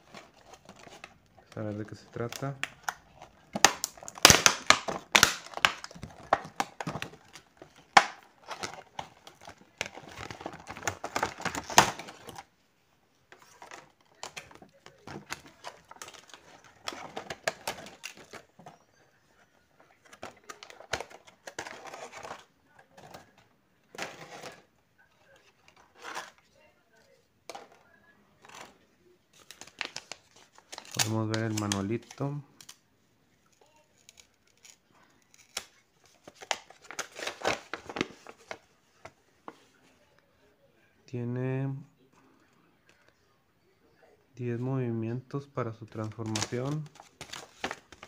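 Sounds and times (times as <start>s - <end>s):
plastic packaging crinkling: 0.0s - 12.5s, 13.3s - 19.0s, 29.3s - 32.8s, 33.5s - 38.7s, 45.8s - 48.0s.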